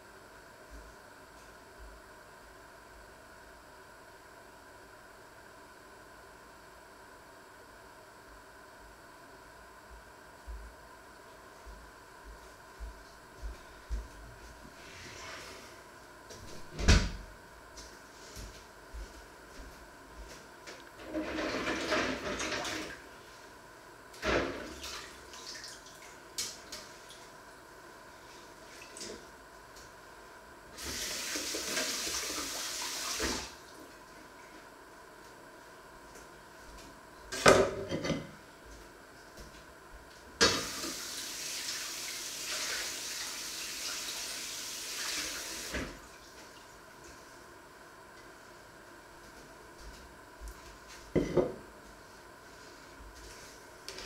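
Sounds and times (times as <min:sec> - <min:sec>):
water running from tap: 0:30.8 - 0:33.4, 0:40.5 - 0:45.8.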